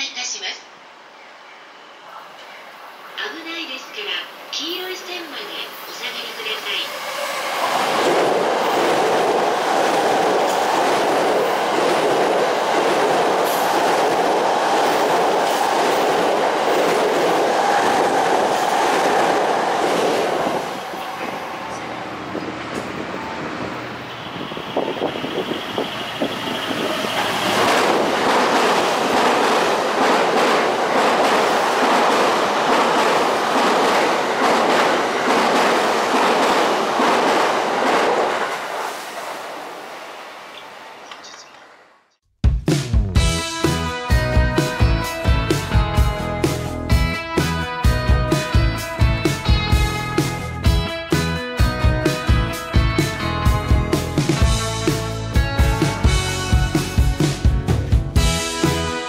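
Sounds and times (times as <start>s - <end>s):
train wheels on rails: 5.3s - 41.8s.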